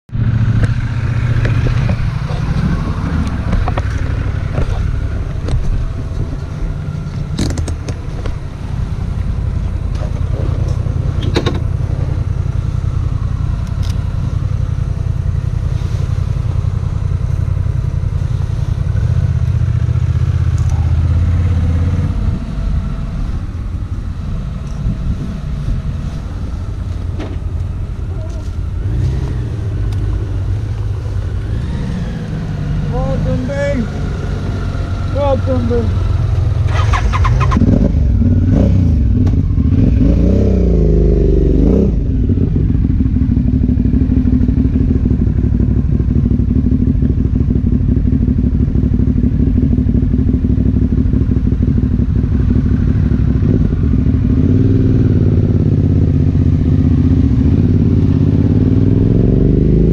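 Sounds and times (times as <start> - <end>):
motorcycle engine idling: 0.2 - 58.5.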